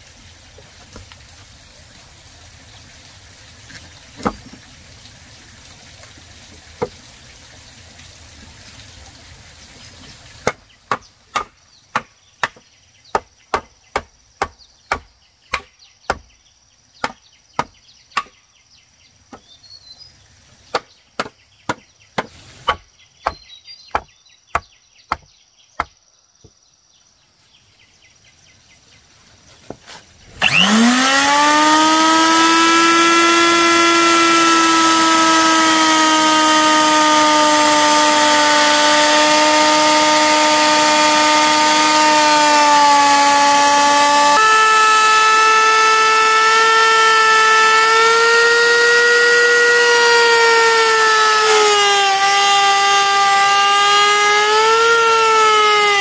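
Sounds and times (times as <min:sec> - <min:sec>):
blade chopping wood: 0:04.2 - 0:04.6, 0:10.4 - 0:16.3, 0:17.0 - 0:18.4, 0:20.7 - 0:25.9
electric power tool whine: 0:30.2 - 0:56.0.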